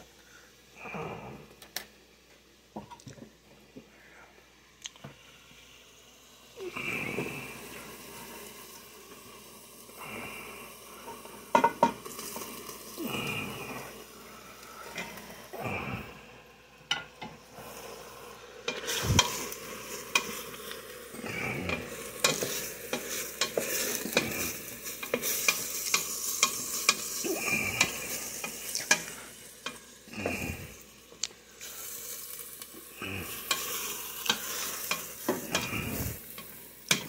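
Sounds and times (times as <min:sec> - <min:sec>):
meat sizzling in a pot: 0:01.8 - 0:37.0
wooden spoon scraping a pot: 0:33.3 - 0:37.0.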